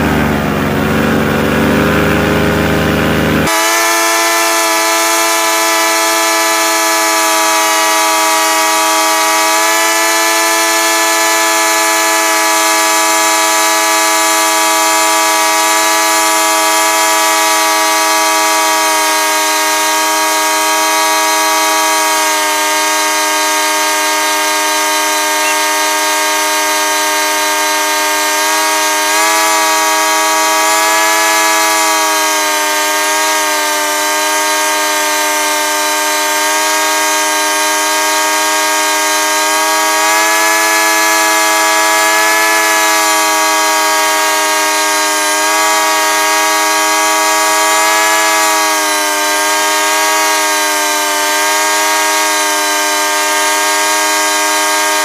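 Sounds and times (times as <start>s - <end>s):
paramotor engine drone: 0.0s - 55.0s.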